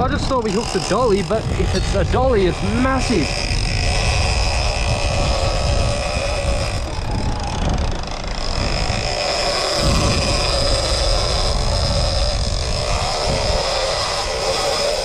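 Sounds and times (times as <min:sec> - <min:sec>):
fishing reel drag whining: 0:00.0 - 0:15.0
low wind: 0:00.0 - 0:15.0.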